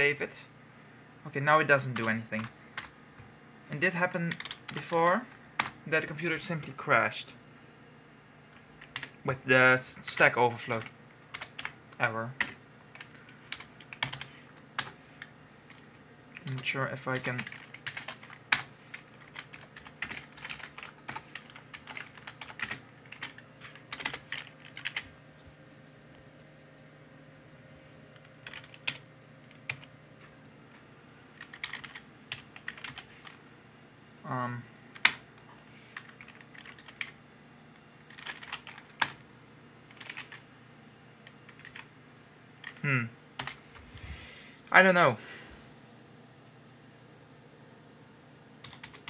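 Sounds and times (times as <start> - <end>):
faint steady hum: 0.0 - 49.0
typing on computer keyboard: 4.3 - 4.8, 8.6 - 9.2, 10.8 - 11.8, 12.4 - 15.0, 16.4 - 25.1, 28.2 - 29.9, 31.4 - 33.4, 36.0 - 37.2, 38.1 - 39.2, 39.9 - 40.4, 41.2 - 41.9, 48.6 - 49.0.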